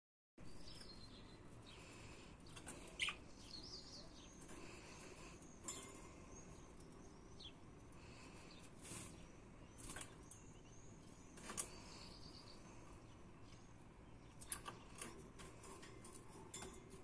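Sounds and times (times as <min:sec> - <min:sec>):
budgerigars chirping: 0:00.7 - 0:04.4.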